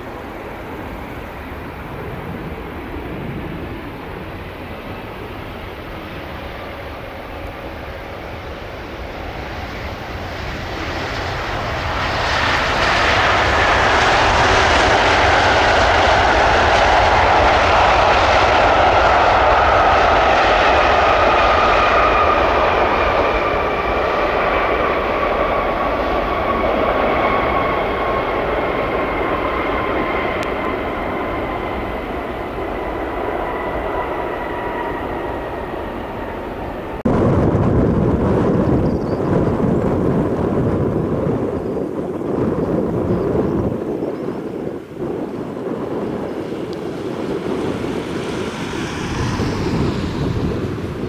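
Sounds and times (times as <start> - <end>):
jet engine whine: 0.0 - 51.0
jet engines roaring: 0.0 - 51.0.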